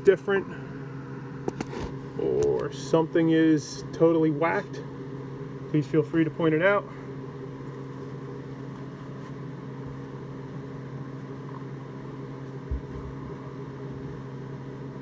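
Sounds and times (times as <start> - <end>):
welder humming: 0.0 - 15.0
man talking: 2.2 - 4.8, 5.7 - 6.9.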